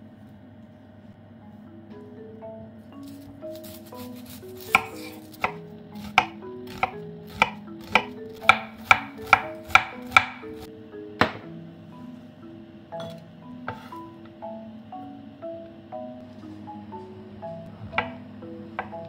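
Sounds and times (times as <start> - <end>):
soft background music: 0.2 - 19.0
knife chopping on wooden board: 3.6 - 10.4.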